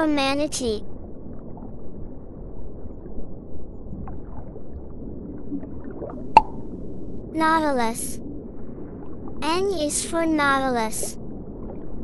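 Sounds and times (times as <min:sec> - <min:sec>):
underwater gurgling and bubbling: 0:03.9 - 0:07.2
bubble pops: 0:06.3 - 0:06.6.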